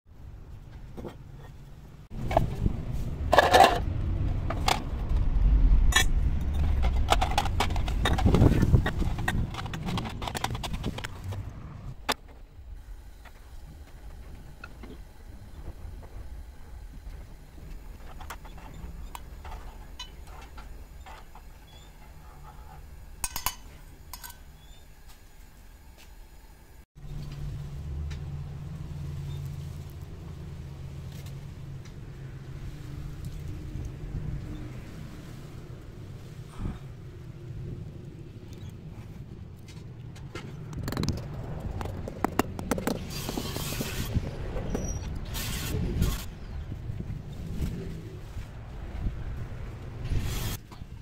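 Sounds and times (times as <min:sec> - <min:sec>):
steady low rumble: 0:00.1 - 0:24.6, 0:26.6 - 0:51.0
steady low hum: 0:00.1 - 0:50.3
lead pieces clinking into iron pot: 0:23.2 - 0:24.5.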